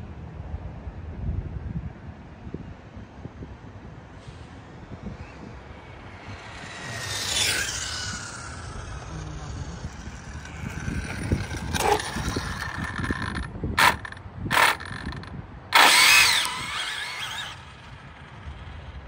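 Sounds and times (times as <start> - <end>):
electric motor whining: 4.9 - 18.8.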